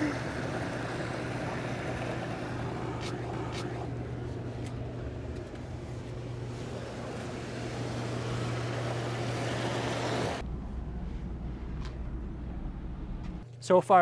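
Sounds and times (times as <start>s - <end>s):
water churning: 0.0s - 10.4s
jet pump hum: 0.0s - 10.5s.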